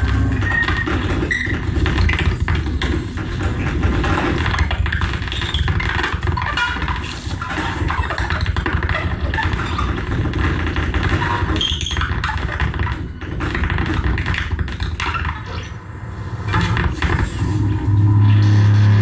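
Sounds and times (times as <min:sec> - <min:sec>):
noise music with crackles and clicks: 0:00.0 - 0:19.0.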